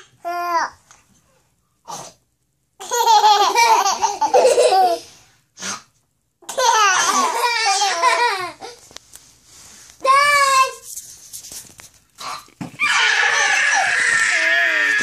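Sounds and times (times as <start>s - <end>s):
toddler laughing: 2.8s - 5.1s, 6.5s - 8.8s.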